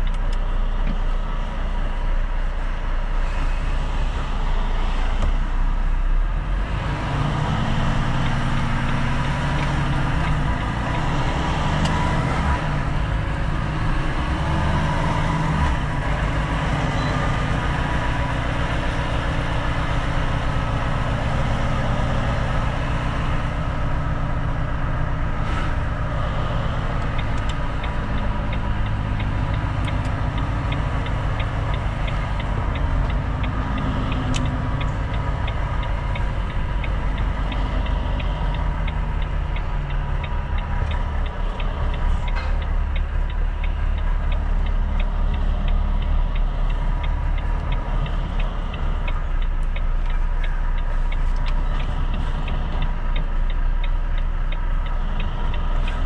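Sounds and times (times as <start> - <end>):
truck diesel engine running: 0.0 - 56.0
light ticking: 25.9 - 56.0.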